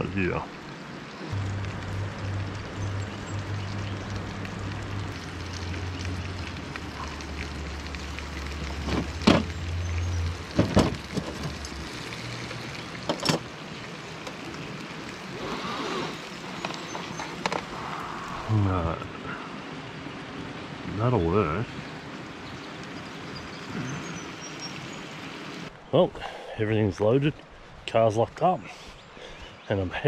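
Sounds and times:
low hum: 0:01.2 - 0:13.4
bacon frying in a pan: 0:01.3 - 0:15.4.

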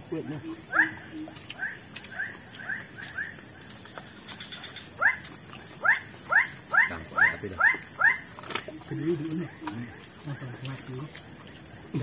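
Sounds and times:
animal giving upward-sweeping calls: 0:00.4 - 0:03.4.

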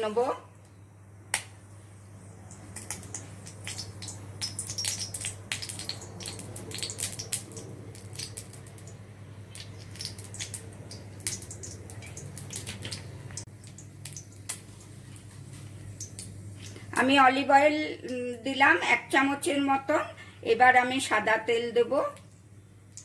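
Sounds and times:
steady low hum: 0:00.0 - 0:23.0
oil crackling and spitting: 0:02.4 - 0:17.0.

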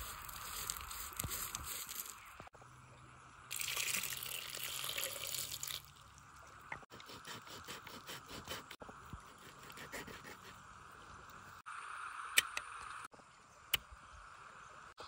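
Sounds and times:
running water: 0:03.5 - 0:06.6.

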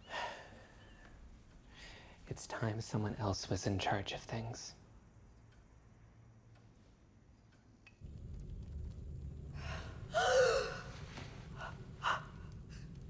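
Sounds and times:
low rumble: 0:08.0 - 0:13.0
woman gasping and crying out: 0:09.7 - 0:12.3.

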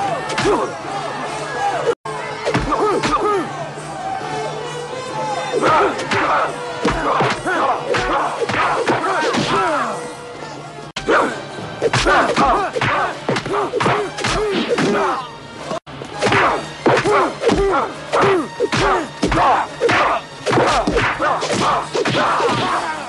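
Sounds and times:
shouts and grunts: 0:00.0 - 0:04.6, 0:05.2 - 0:11.4, 0:12.0 - 0:15.3, 0:16.2 - 0:23.0
film music: 0:00.0 - 0:23.0
punch and kick impacts: 0:02.5 - 0:03.2, 0:11.8 - 0:15.0, 0:16.2 - 0:22.8.

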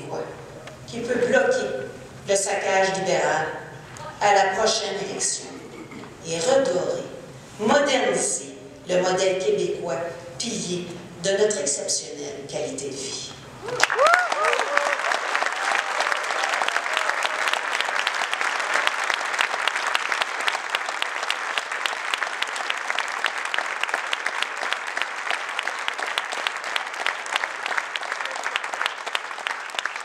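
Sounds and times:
crowd applauding: 0:13.6 - 0:30.0
crowd cheering: 0:13.6 - 0:30.0.

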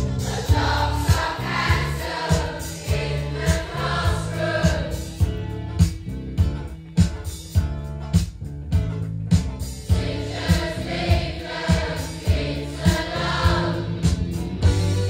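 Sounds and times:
voices singing: 0:00.0 - 0:05.2, 0:09.9 - 0:14.0
steady drum beat: 0:00.0 - 0:15.0.

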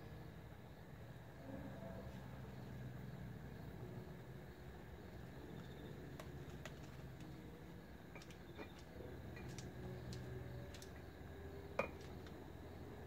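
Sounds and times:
low steady hum: 0:00.0 - 0:13.0
hens shuffling light clicks: 0:06.2 - 0:07.4.

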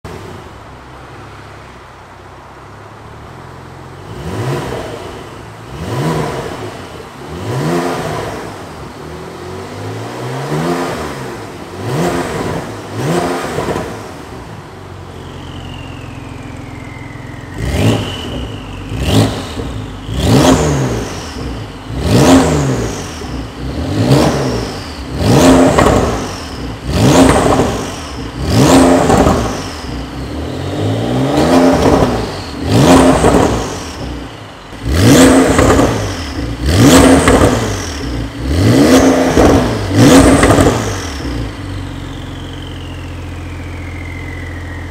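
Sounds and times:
car engine revving: 0:02.5 - 0:44.9
high falling turbo whistle: 0:15.0 - 0:19.8, 0:42.2 - 0:44.9.

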